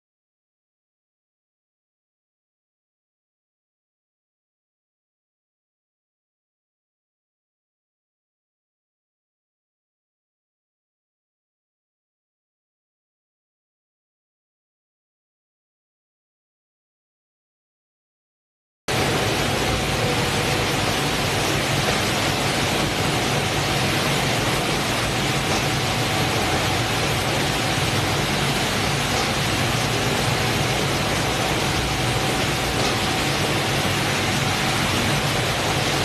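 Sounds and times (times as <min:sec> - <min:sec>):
processing machinery hum: 0:18.9 - 0:36.0.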